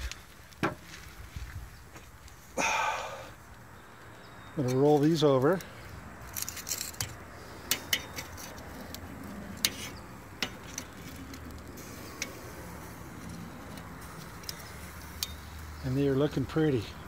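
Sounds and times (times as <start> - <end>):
metal tongs clicking on grill grate: 4.6 - 15.7.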